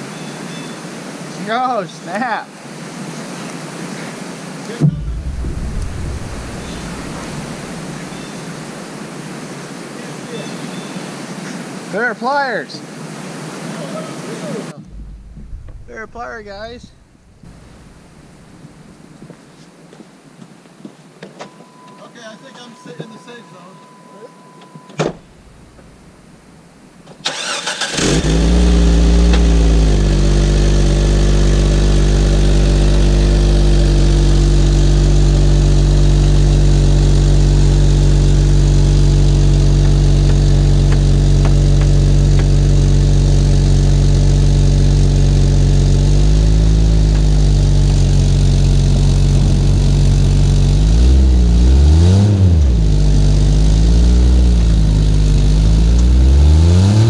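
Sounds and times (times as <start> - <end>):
thump: 4.8 - 8.6, 14.8 - 16.0, 24.9 - 25.3
car engine running: 4.8 - 9.0, 14.8 - 19.0, 27.4 - 57.0.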